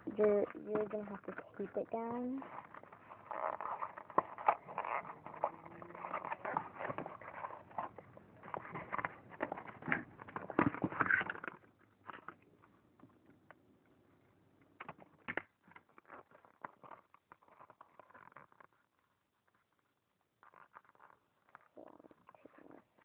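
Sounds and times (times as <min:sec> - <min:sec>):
paper rustling and crinkling: 0:02.4 - 0:12.4.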